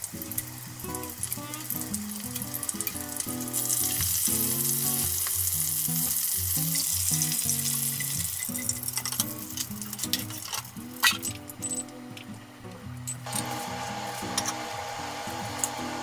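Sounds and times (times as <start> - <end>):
shrimp sizzling in frying oil: 0.0 - 12.0.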